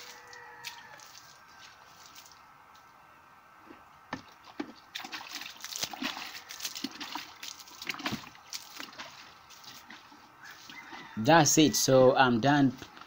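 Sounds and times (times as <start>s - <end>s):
water splashing onto soil: 0.0s - 2.4s, 4.2s - 10.1s
water sloshing in a bucket: 4.1s - 11.2s.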